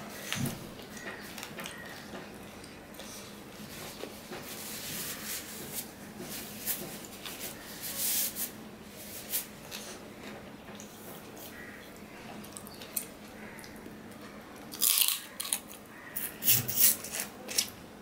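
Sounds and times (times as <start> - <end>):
paper tissue rustling: 3.5 - 10.0.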